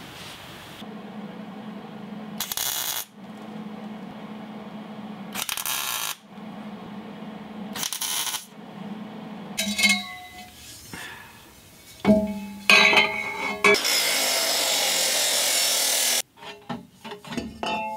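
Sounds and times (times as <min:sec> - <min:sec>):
low steady hum: 0:00.6 - 0:13.7
welder crackling: 0:00.8 - 0:09.6, 0:13.7 - 0:16.2.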